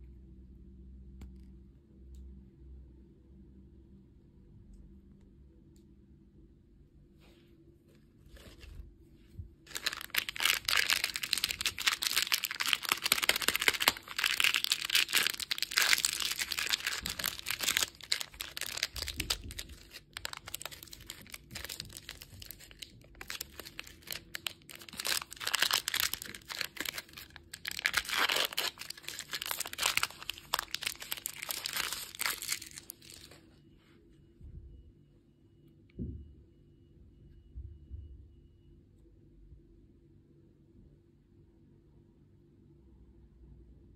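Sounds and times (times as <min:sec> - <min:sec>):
plastic wrapper crinkling: 0:09.7 - 0:33.4.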